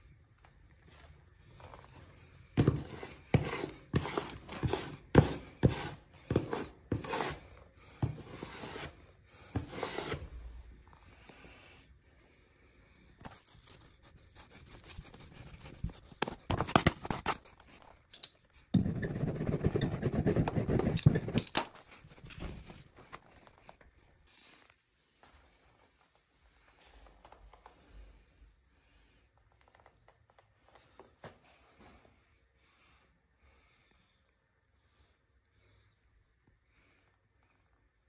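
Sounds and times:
scraping and rubbing on paper: 2.6 - 10.3, 13.2 - 18.0, 18.8 - 23.2
paper rustling: 13.2 - 18.0.

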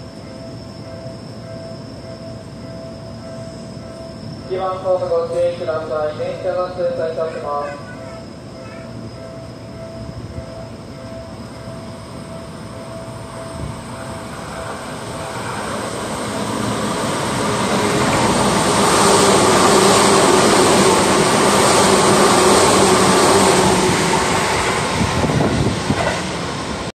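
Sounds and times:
train wheels rumbling on rails: 7.8 - 26.9.

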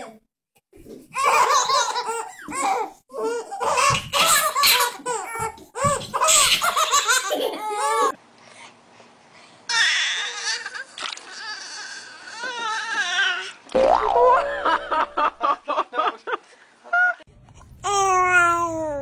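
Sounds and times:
baby laughing: 1.2 - 8.2.

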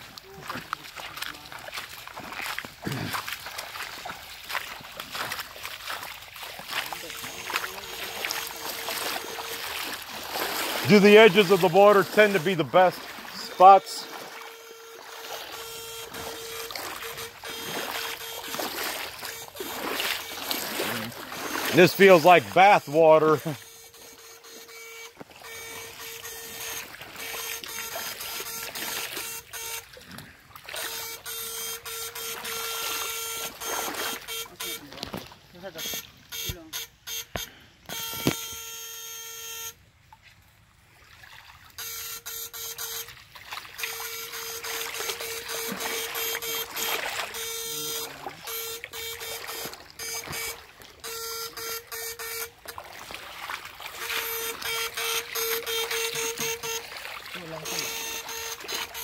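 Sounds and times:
creek water trickling: 0.0 - 59.0
electrofishing unit buzzing in pulses: 6.8 - 29.9, 41.8 - 52.9, 53.8 - 59.0.

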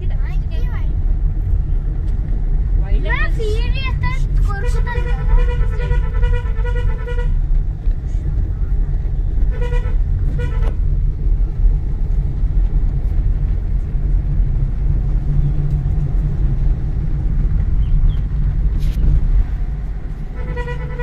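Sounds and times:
car engine and road noise: 0.0 - 21.0
car horn toot: 4.6 - 7.4, 9.5 - 10.8, 20.3 - 21.0.

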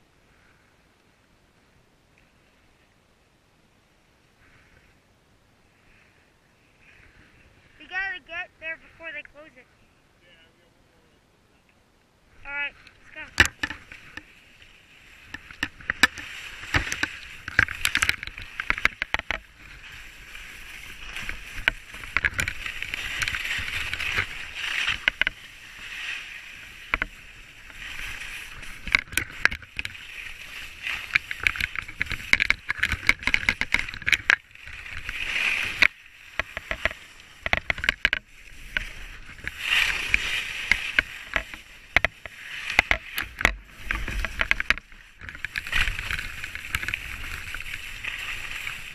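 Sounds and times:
skis scraping over snow: 13.0 - 48.9
sharp clicks and rattles: 13.1 - 14.3, 15.2 - 19.5, 21.0 - 25.4, 27.8 - 47.8.

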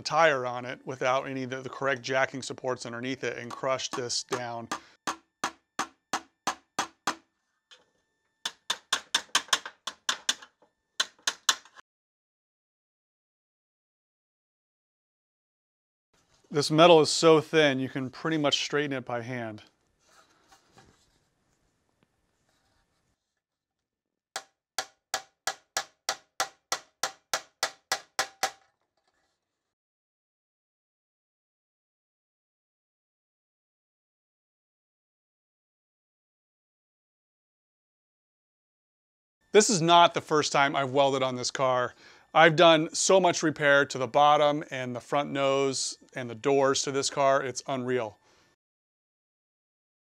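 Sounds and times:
hammer tapping sheet metal: 3.4 - 7.2, 8.5 - 11.8, 24.4 - 28.7.

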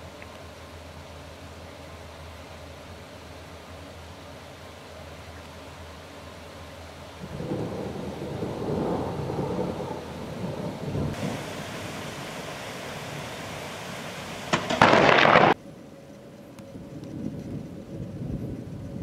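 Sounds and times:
rain hissing: 0.0 - 15.7
thunder rumbling: 7.2 - 15.6, 16.8 - 19.0
loud burst of noise: 10.5 - 15.6.

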